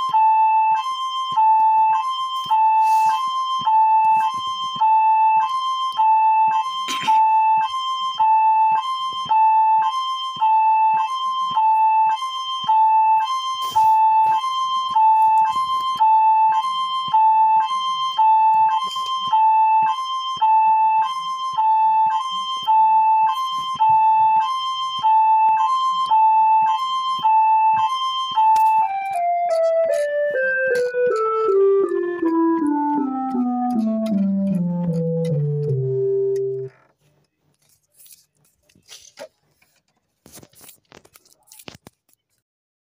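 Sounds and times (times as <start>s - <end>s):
two-tone electronic siren: 0.0s - 36.9s.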